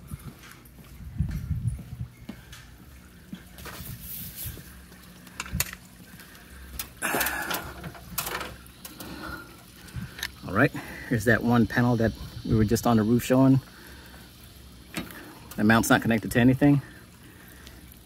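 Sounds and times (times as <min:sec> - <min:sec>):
footsteps: 0:00.0 - 0:06.3.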